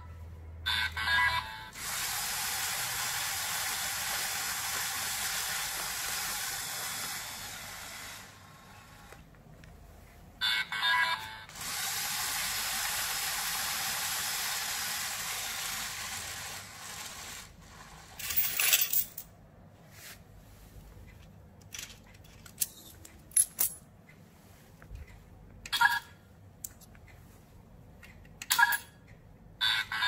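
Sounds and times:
motor hissing whir: 1.8s - 9.1s, 11.5s - 18.0s.

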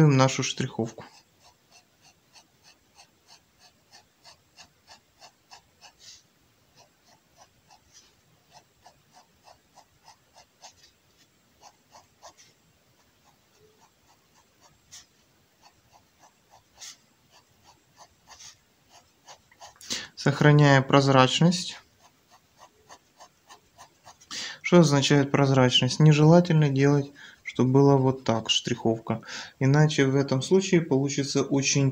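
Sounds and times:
pen scratching on paper: 0.2s - 26.7s.

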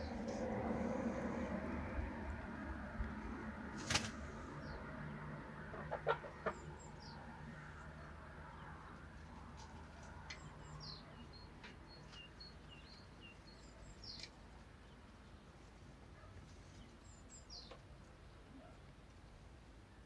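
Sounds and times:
small birds chirping: 5.8s - 19.2s.

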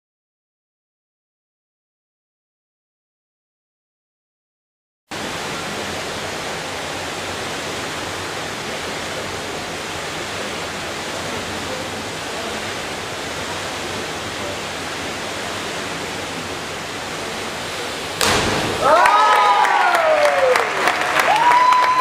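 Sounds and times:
indoor pool hall rushing noise: 5.1s - 22.0s.

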